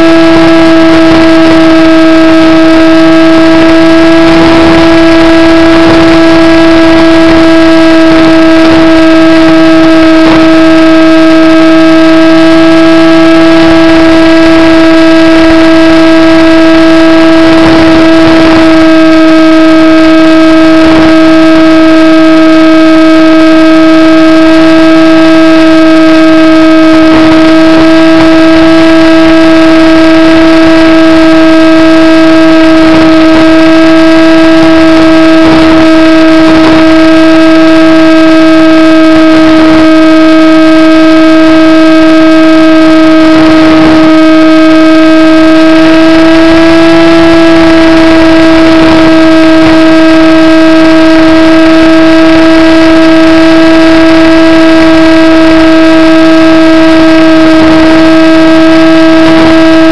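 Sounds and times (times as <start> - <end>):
model airplane motor whining: 0.0 - 20.0.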